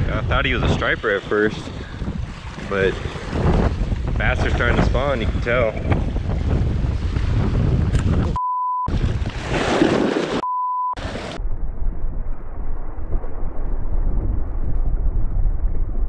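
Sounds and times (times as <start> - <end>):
wind buffeting microphone: 0.0 - 9.5
censor bleep: 8.4 - 8.9, 10.4 - 11.0.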